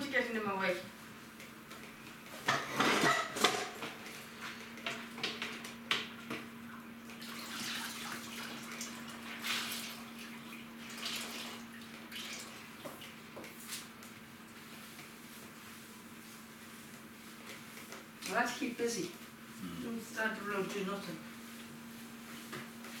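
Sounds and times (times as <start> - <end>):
mop sloshing in bucket of water: 7.1 - 13.0
steady low hum: 18.4 - 23.0.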